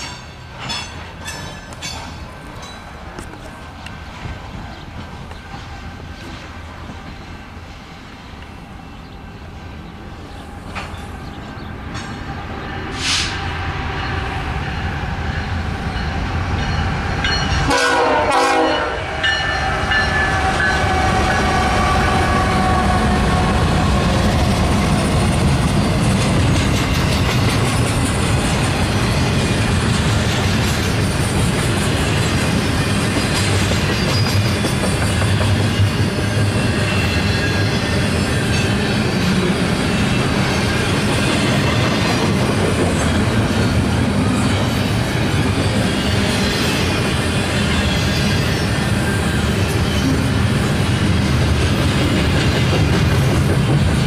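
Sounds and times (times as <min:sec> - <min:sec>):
train wheels clattering on rails: 0:00.0 - 0:07.4, 0:10.3 - 0:14.7, 0:19.2 - 0:54.0
train horn: 0:17.6 - 0:23.9.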